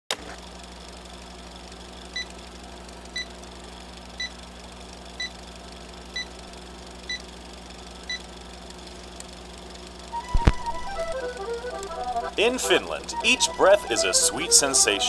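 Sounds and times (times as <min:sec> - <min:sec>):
low hum and hiss: 0:10.1 - 0:15.0.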